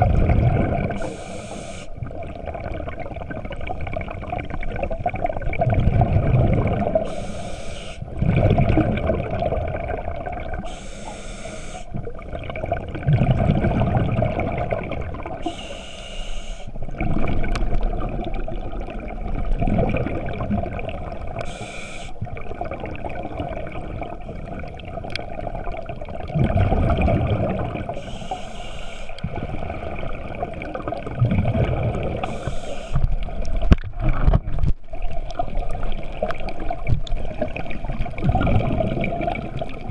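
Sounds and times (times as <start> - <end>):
bubbles gurgling underwater: 0.0 - 1.3, 1.9 - 7.3, 8.0 - 10.8, 11.9 - 15.6, 16.8 - 21.6, 22.2 - 28.1, 29.2 - 39.9
regulator inhale hiss: 1.0 - 2.0, 7.0 - 8.1, 10.6 - 12.0, 15.4 - 16.8, 21.4 - 22.2, 28.0 - 29.2, 32.2 - 33.1.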